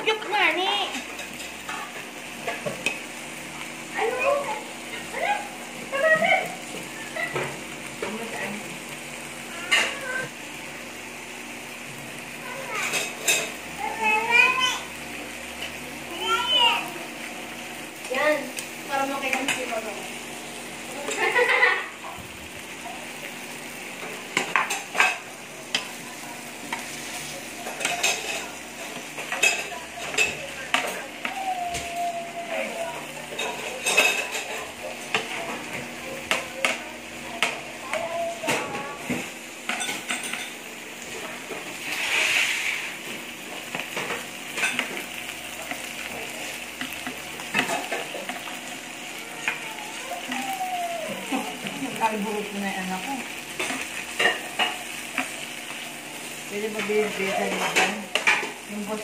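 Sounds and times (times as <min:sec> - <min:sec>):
meat sizzling on a grill plate: 0:00.0 - 0:59.0
metal utensils clicking and tapping: 0:12.8 - 0:13.6, 0:19.2 - 0:19.8, 0:24.0 - 0:26.0, 0:27.6 - 0:31.8, 0:33.3 - 0:38.7, 0:39.7 - 0:40.6, 0:43.5 - 0:48.8, 0:53.2 - 0:55.8, 0:56.7 - 0:58.6.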